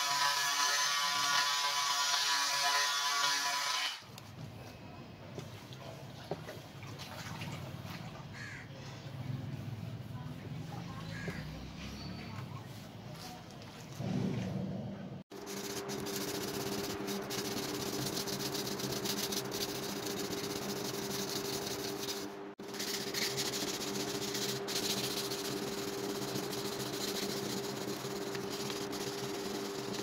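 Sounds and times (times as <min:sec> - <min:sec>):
sharpening stone rasping on steel: 0:15.4 - 0:30.0.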